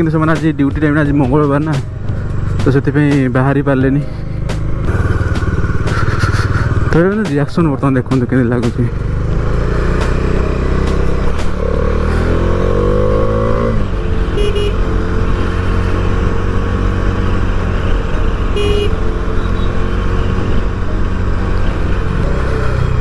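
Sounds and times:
motorcycle engine accelerating: 0:00.0 - 0:23.0
short horn toots: 0:14.4 - 0:14.8, 0:18.6 - 0:19.0.

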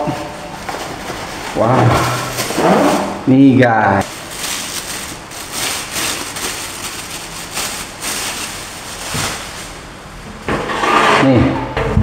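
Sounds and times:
plastic bag rustling and crinkling: 0:00.0 - 0:03.2, 0:04.0 - 0:10.2.

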